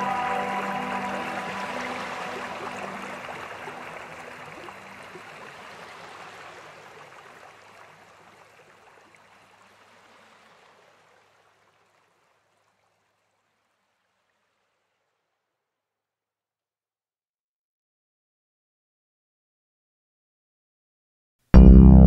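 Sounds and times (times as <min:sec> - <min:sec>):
steady rushing water-like noise: 0:00.0 - 0:12.5
low background music: 0:21.6 - 0:22.0.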